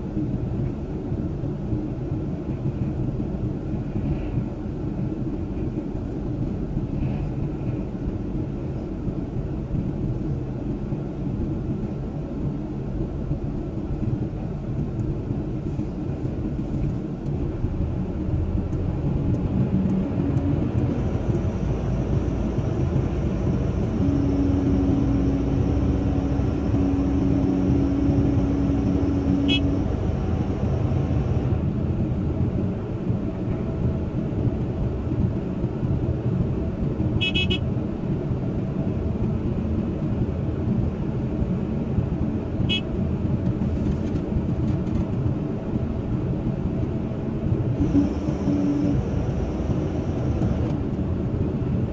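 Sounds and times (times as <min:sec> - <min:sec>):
dump truck engine: 0:00.0 - 0:51.9
excavator diesel engine running: 0:15.2 - 0:35.5, 0:46.3 - 0:51.9
steady tone: 0:17.5 - 0:31.8.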